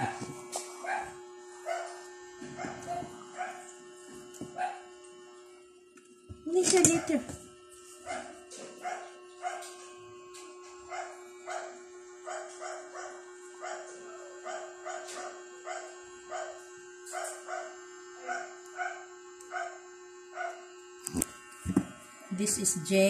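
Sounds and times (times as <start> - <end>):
dog barking: 0.0 - 2.0, 2.6 - 3.7, 4.6 - 4.9, 8.1 - 9.8, 10.9 - 19.8, 20.4 - 20.6
steady hum: 0.0 - 23.0.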